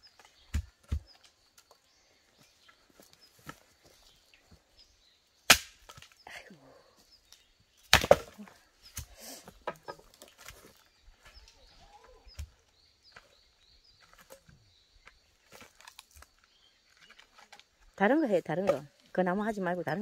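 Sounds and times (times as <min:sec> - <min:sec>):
small birds chirping: 0:00.0 - 0:20.0
axe chopping wood: 0:05.5 - 0:06.1, 0:07.9 - 0:09.1.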